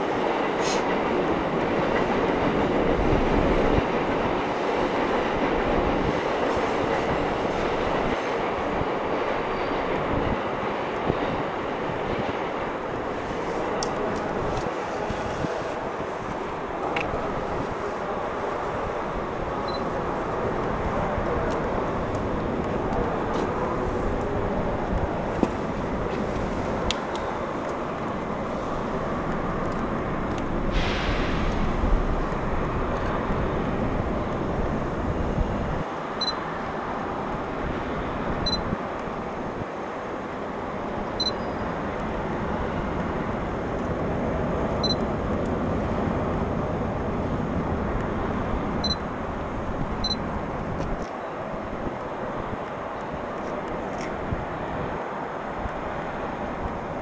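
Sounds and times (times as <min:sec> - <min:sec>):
outdoor noise wash: 0:00.0 - 0:57.0
wind gusts on microphone: 0:00.0 - 0:57.0
faint high beeps: 0:19.7 - 0:19.9, 0:36.2 - 0:36.4, 0:38.4 - 0:38.6, 0:41.2 - 0:41.6, 0:44.8 - 0:45.0, 0:48.8 - 0:49.0, 0:50.0 - 0:50.2.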